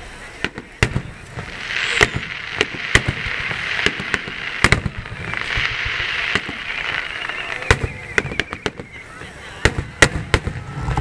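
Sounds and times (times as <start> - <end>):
fireworks bursting bangs: 0.0 - 11.0
fireworks hiss: 0.0 - 11.0.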